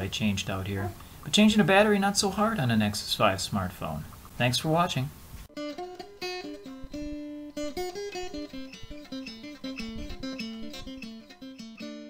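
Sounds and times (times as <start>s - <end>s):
plucked acoustic guitar melody: 5.5s - 12.0s.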